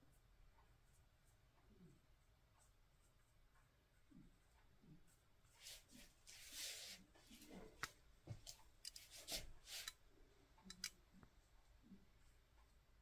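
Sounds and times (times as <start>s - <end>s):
brush swishing on paper: 2.2s - 7.8s, 8.4s - 10.0s.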